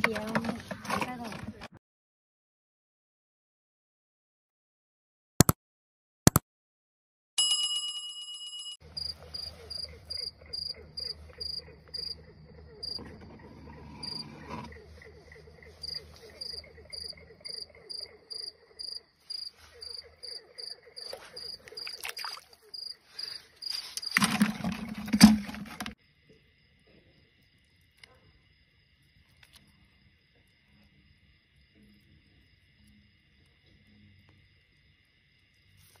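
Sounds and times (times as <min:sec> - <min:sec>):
frogs trilling: 0:08.8 - 0:24.7
insects chirping: 0:08.8 - 0:36.0.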